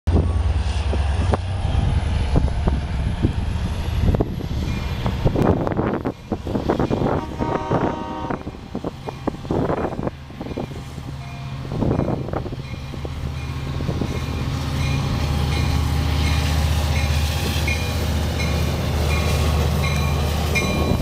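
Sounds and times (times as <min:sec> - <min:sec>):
diesel locomotive engine drone: 0:00.1 - 0:21.0
train knocks and clatter: 0:00.1 - 0:21.0.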